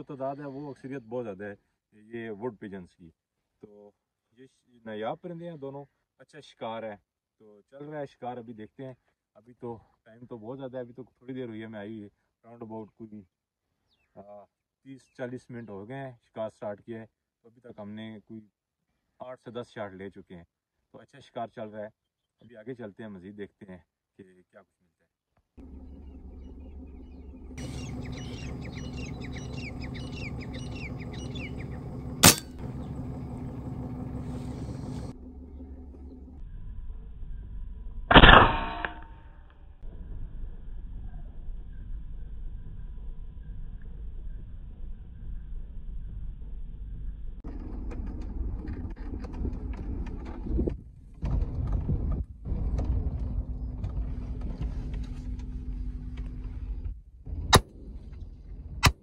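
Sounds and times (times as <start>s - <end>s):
small birds chirping: 25.6s - 36.2s
vehicle rumble: 25.6s - 38.2s, 39.2s - 59.0s
low hum: 25.6s - 50.5s, 51.2s - 59.0s
air rifle shot: 32.2s - 32.6s, 38.1s - 39.2s
sharp crack: 32.2s - 32.8s, 38.1s - 39.4s.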